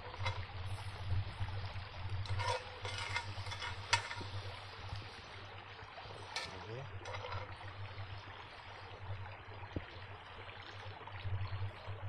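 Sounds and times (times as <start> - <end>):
small river flowing: 0.0 - 12.0.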